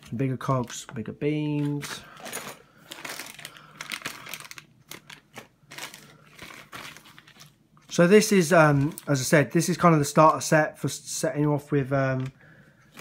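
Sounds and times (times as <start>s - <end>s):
plastic bags crinkling: 0.0s - 9.5s, 12.0s - 13.0s.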